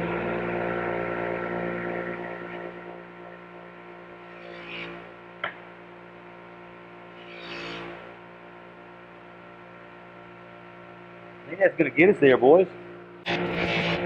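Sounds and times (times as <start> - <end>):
buffer motor humming: 0.0 - 14.0.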